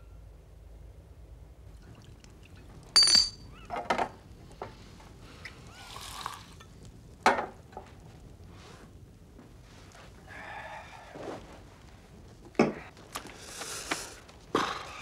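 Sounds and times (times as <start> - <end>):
glass stopper ringing: 3.0 - 3.5
soda siphon squirt: 5.4 - 6.7
drink pouring into glass: 5.8 - 6.7.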